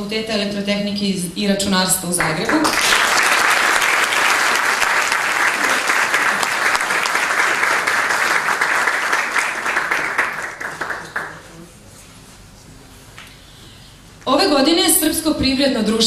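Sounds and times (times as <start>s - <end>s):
audience applauding: 2.2s - 11.7s.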